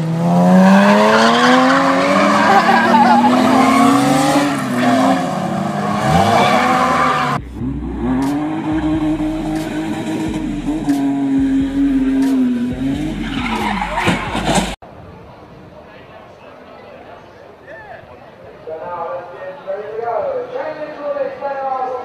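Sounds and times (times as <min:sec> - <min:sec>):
car engines at high revs: 0:00.0 - 0:14.8
tyres skidding and squealing: 0:00.5 - 0:14.8.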